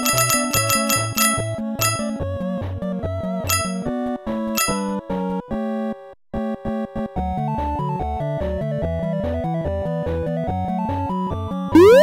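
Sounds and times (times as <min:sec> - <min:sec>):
chiptune game music: 0:00.0 - 0:12.0
eight-bit bleeps: 0:11.8 - 0:12.0.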